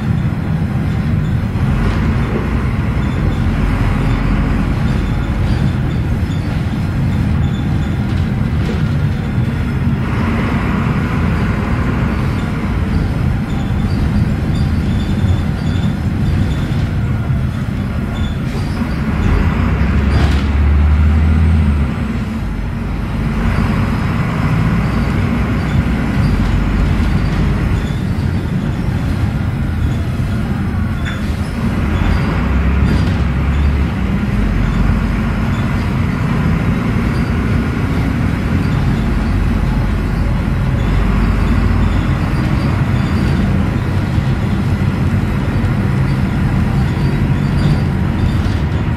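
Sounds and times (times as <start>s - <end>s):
bus body rattles: 0.0s - 48.9s
bus engine and road rumble: 0.0s - 48.9s.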